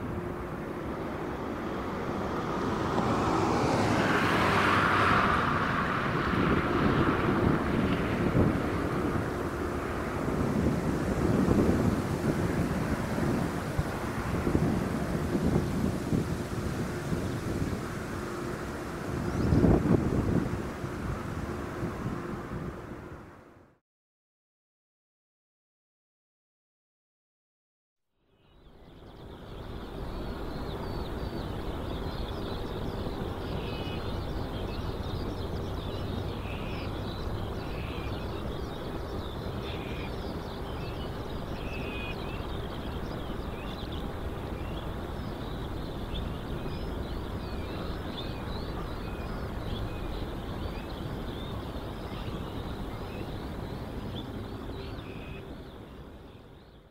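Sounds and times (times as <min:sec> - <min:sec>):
small birds chirping: 0:28.4 - 0:56.9.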